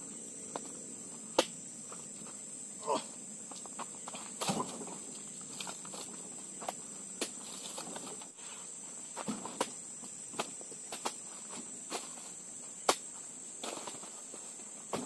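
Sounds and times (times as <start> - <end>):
insects buzzing: 0.0 - 15.0
fruit bunches thudding into truck bed: 4.4 - 5.1, 9.2 - 9.7.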